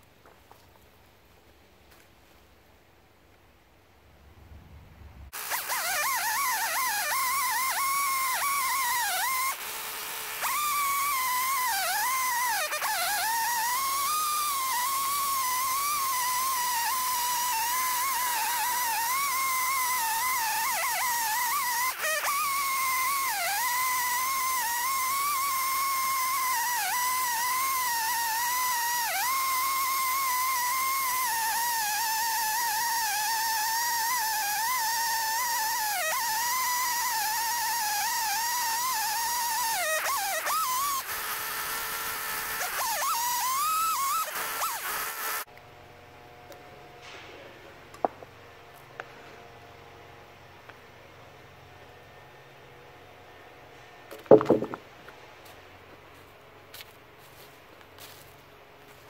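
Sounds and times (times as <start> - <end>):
chainsaw ripping a log: 5.3 - 45.5, 54.1 - 54.8.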